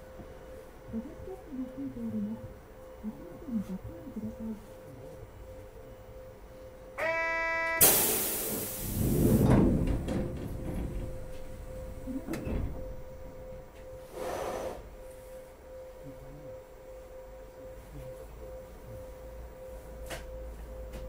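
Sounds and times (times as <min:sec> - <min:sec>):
steady hum: 0:00.0 - 0:21.0
electric door buzzer: 0:07.0 - 0:08.7
compressed air hiss: 0:07.0 - 0:09.1
air-operated doors rumbling: 0:07.0 - 0:14.9.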